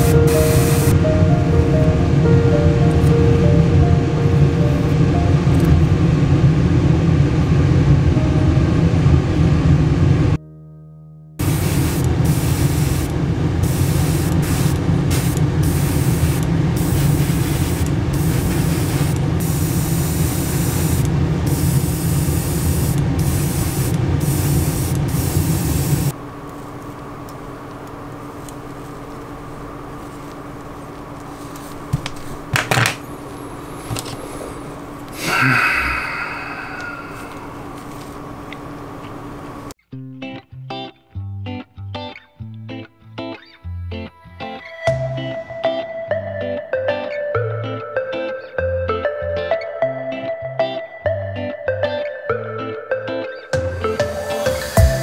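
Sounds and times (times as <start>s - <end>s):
airbrush spraying hiss: 0.0s - 0.9s, 11.4s - 26.1s.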